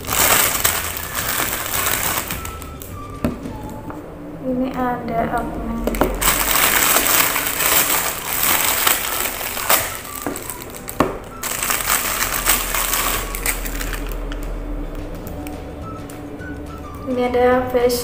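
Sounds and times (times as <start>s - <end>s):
plastic wrapping crinkling: 0.0s - 3.8s, 5.8s - 14.6s.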